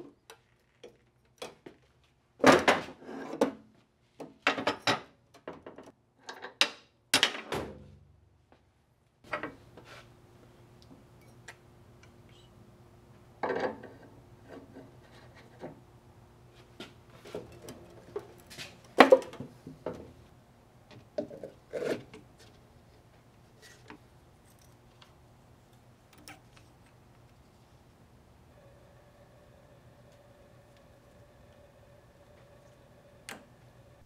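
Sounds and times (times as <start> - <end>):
faint steady hum: 9.3 - 34.0.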